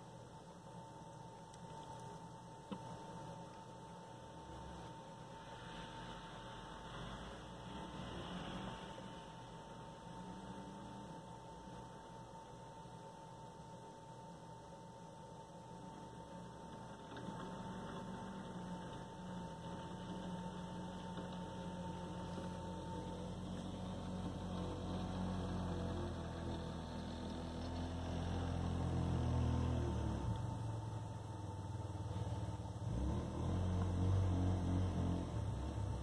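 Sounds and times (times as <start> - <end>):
thin high whine: 0.0 - 26.0
atv engine droning: 5.4 - 11.2, 16.9 - 36.0.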